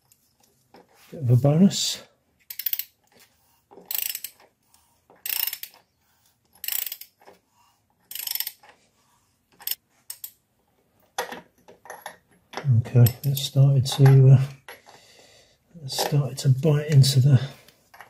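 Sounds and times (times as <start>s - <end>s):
ratchet wrench clicking: 2.5s - 3.0s, 3.9s - 4.4s, 5.2s - 5.8s, 6.6s - 7.2s, 8.1s - 8.6s.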